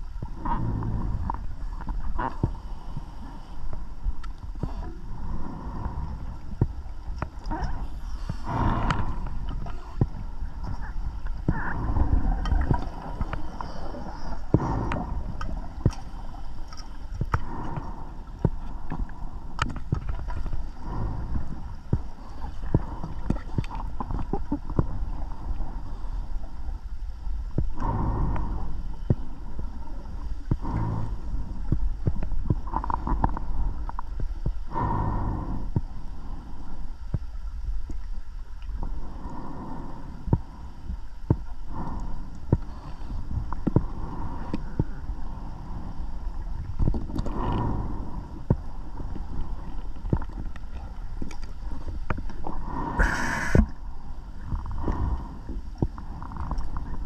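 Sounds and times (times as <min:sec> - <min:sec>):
small clicks underwater: 0:00.1 - 0:05.0, 0:05.7 - 0:25.0, 0:30.2 - 0:34.6, 0:37.1 - 0:38.9, 0:40.3 - 0:45.1, 0:46.4 - 0:53.8, 0:54.4 - 0:57.0
gurgling exhaled bubbles: 0:07.4 - 0:16.4, 0:50.2 - 0:53.8.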